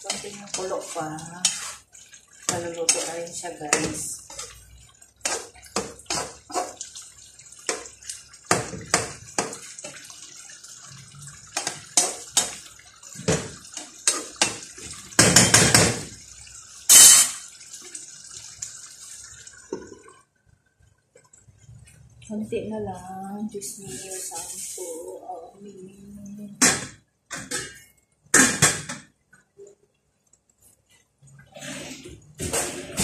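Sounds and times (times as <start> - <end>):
spatula scraping frying pan: 0.0 - 4.6
stew bubbling: 0.0 - 22.4.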